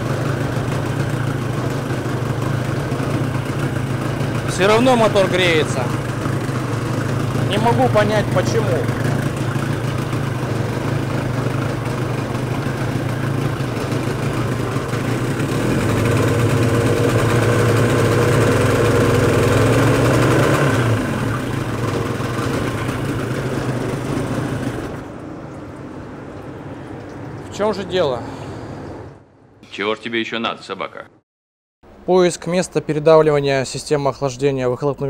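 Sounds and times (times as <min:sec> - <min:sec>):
outboard engine running: 0:00.0 - 0:27.9.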